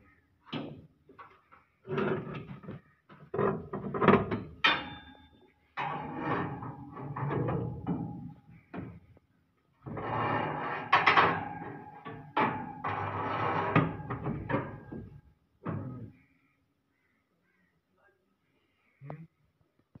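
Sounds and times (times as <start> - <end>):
metal knocks and clanks: 2.0 - 9.2, 9.8 - 16.1.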